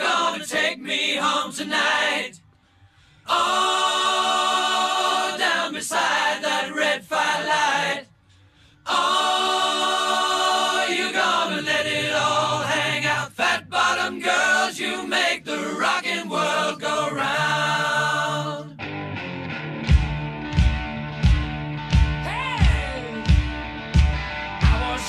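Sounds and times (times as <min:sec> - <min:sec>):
choir singing: 0:00.0 - 0:02.4, 0:03.2 - 0:08.1, 0:08.8 - 0:18.8, 0:24.7 - 0:25.0.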